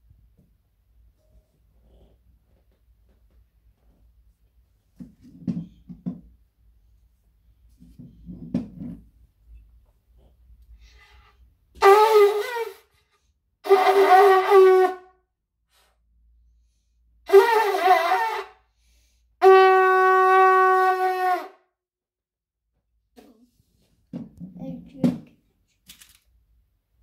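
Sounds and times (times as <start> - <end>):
conch shell blasts: 11.8 - 12.8, 13.6 - 15.0, 17.3 - 18.5, 19.4 - 21.6.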